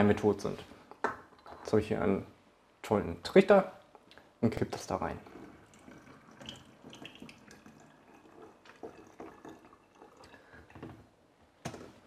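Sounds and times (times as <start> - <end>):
faint drips: 3.9 - 10.8.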